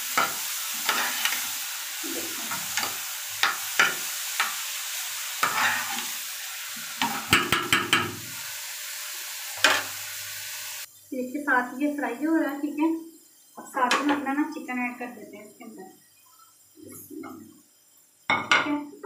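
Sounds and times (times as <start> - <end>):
vegetables sizzling in a frying pan: 0.0 - 15.9
metal spoon scraping a pan: 0.2 - 4.6, 5.4 - 6.2, 7.0 - 8.1.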